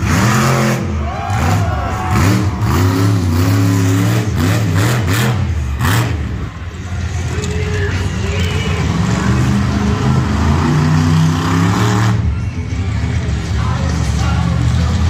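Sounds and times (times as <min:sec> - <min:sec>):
truck engine revving: 0:00.0 - 0:15.0.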